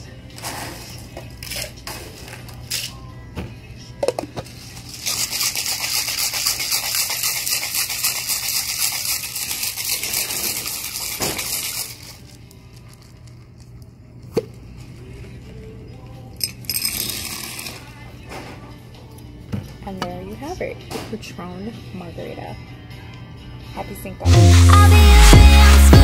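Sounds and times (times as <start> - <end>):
ice rattling in cocktail shaker: 4.6 - 13.4, 16.4 - 17.9.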